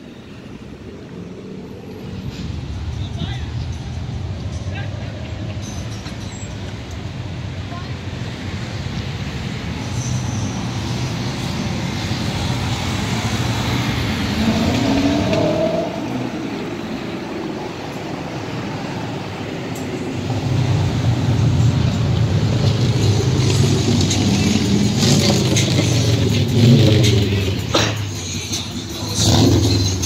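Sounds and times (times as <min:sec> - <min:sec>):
cars passing slowly: 0:00.0 - 0:30.0
engine accelerating: 0:11.1 - 0:18.2, 0:20.1 - 0:30.0
deep loud engine: 0:11.1 - 0:30.0.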